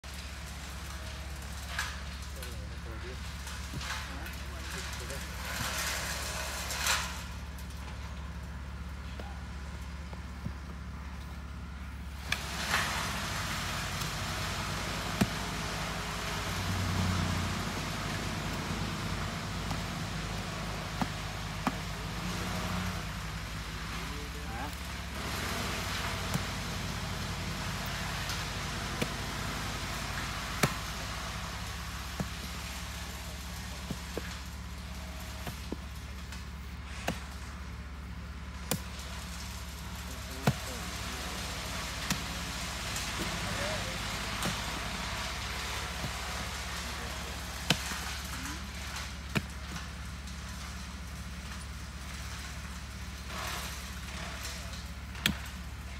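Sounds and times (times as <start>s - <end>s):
low hum and hiss: 0.0s - 55.9s
pickaxe striking soil: 55.2s - 55.4s.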